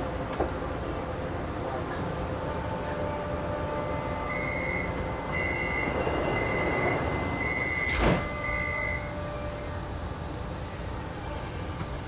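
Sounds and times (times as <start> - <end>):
high door warning beep: 4.4 - 9.0
train doors shutting thump: 5.8 - 8.8.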